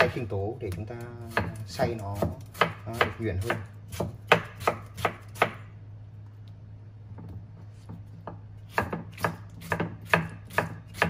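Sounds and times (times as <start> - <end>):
knife chopping on wooden board: 1.2 - 5.6, 8.2 - 11.0.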